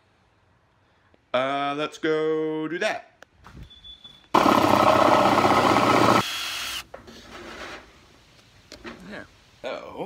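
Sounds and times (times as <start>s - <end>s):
power drill boring plastic: 4.4s - 6.8s.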